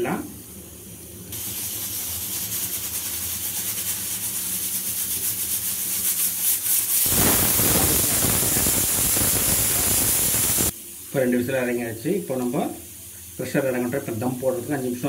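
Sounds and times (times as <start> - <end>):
pressure cooker whistle: 7.0 - 10.7.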